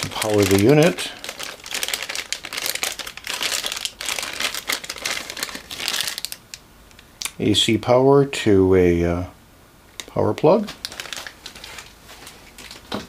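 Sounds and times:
plastic bag crinkling: 0.0s - 6.6s, 10.6s - 13.0s.

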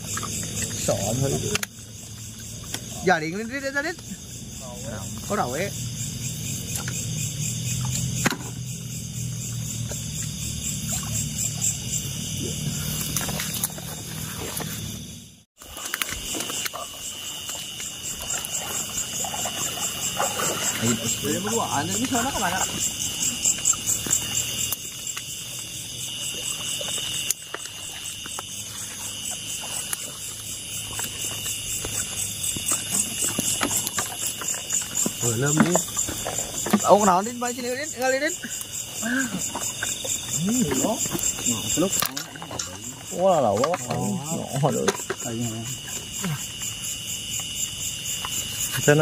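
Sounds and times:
crickets chirping: 0.0s - 49.0s.

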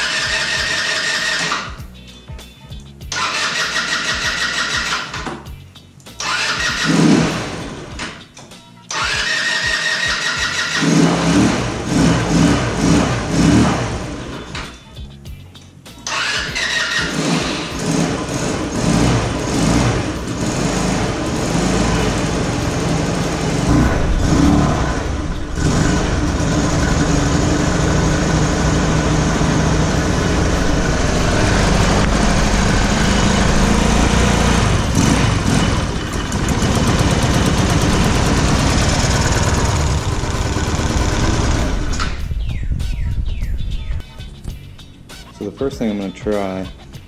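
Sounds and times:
scooter engine running unevenly: 17.0s - 42.0s.

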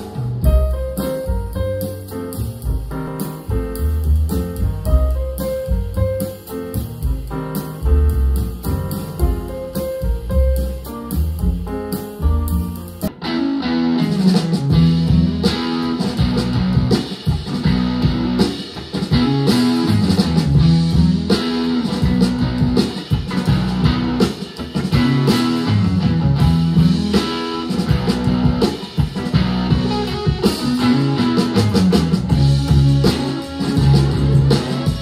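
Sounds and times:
electric guitar music with drums: 0.0s - 35.0s.

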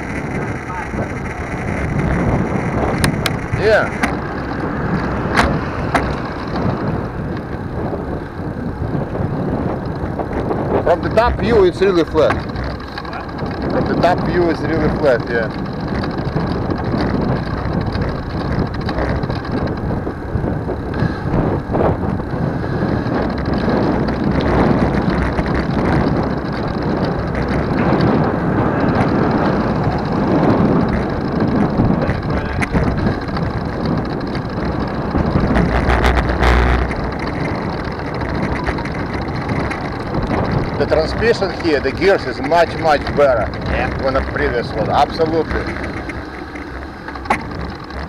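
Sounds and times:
bicycle tyre and road noise: 0.0s - 48.0s
wind over microphone: 0.0s - 48.0s
clicks: 42.7s - 48.0s.

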